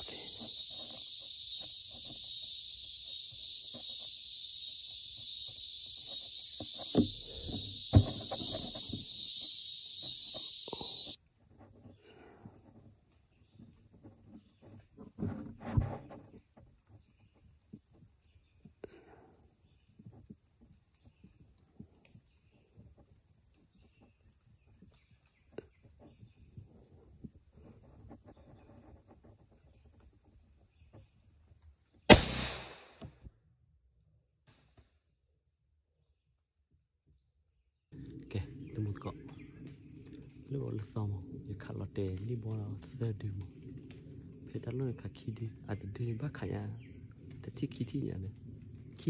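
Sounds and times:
high-pitched insect chorus: 0.0s - 34.4s, 37.9s - 49.0s
thump: 6.7s - 9.1s, 15.2s - 16.2s
light knocks and rustles: 12.6s - 18.1s
loud burst: 32.1s - 33.0s.

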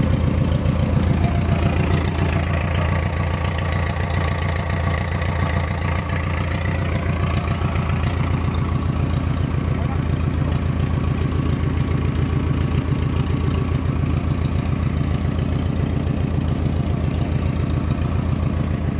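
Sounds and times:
diesel engine idling: 0.0s - 18.9s.

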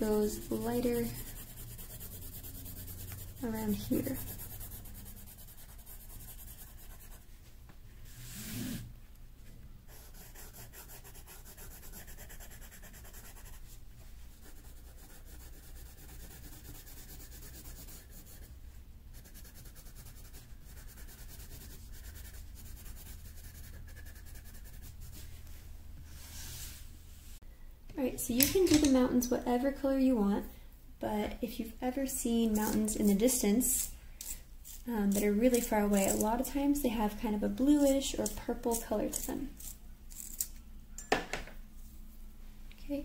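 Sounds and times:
coloring strokes scratching paper: 0.0s - 7.3s, 9.9s - 18.5s, 19.1s - 25.4s, 32.4s - 33.9s, 34.7s - 36.3s.

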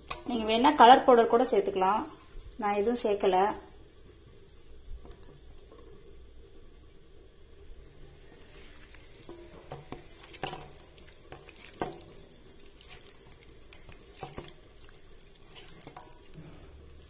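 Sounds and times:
hand squelching in batter: 10.1s - 17.0s.

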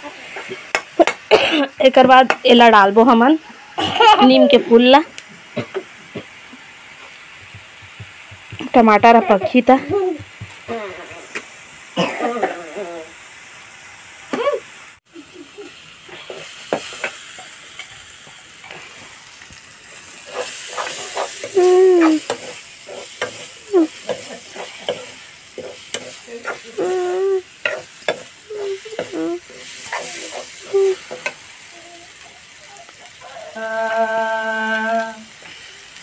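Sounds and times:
food sizzling in a wok: 0.0s - 36.0s
ladle scraping a pan: 20.2s - 27.0s.

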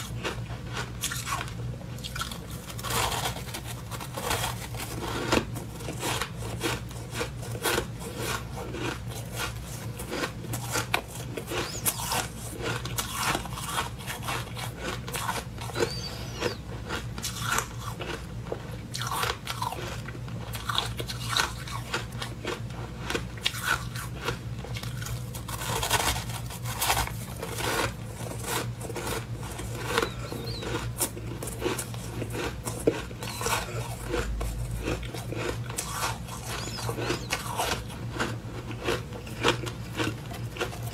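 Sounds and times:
frost crunching while chewed: 0.0s - 40.9s.

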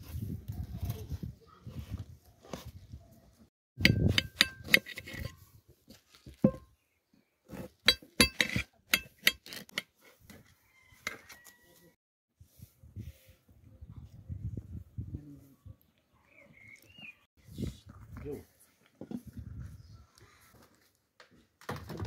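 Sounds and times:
knife clinking on ceramic plate: 3.8s - 5.4s, 7.9s - 9.6s.

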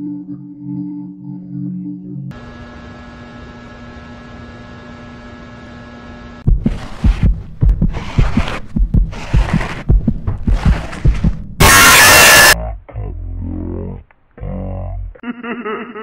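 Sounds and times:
droning hum with tones: 0.0s - 9.8s
loud low pounding thuds: 6.5s - 11.6s.

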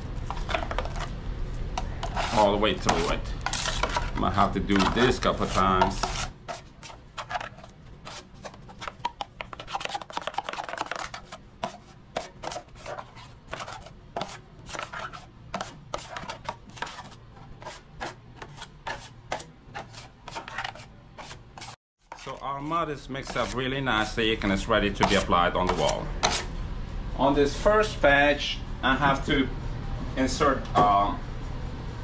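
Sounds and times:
taping knife scraping in metal pan: 1.8s - 22.4s, 23.2s - 23.7s, 25.0s - 26.5s.

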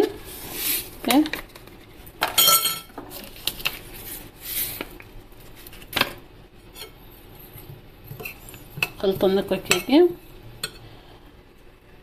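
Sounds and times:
spoon clinking on ceramic plate: 2.3s - 2.9s.

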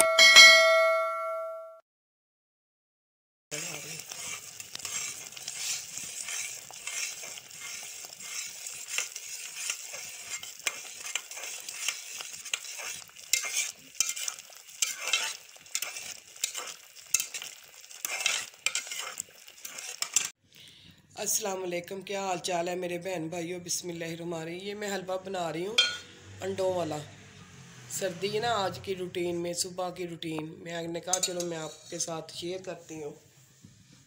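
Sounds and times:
spoon stirring and scraping: 3.5s - 20.3s, 25.8s - 26.0s, 31.1s - 32.3s
mixture sizzling in a pot: 3.5s - 20.4s, 31.0s - 34.0s.

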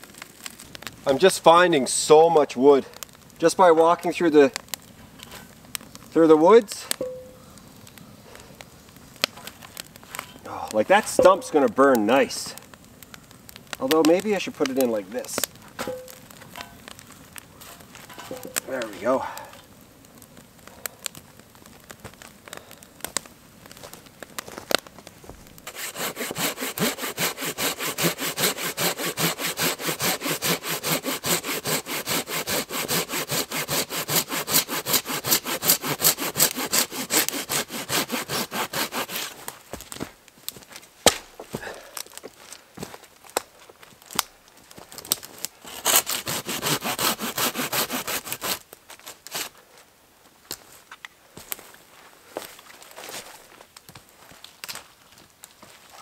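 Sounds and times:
hand saw cutting tree trunk: 25.6s - 39.4s, 45.6s - 48.6s, 49.2s - 49.5s.

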